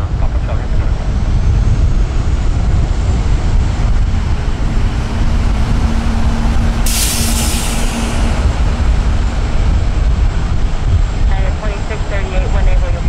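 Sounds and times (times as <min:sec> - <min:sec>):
jet engines deep rumble: 0:00.0 - 0:13.0
steady hum: 0:00.0 - 0:13.0
high hiss: 0:06.8 - 0:08.3.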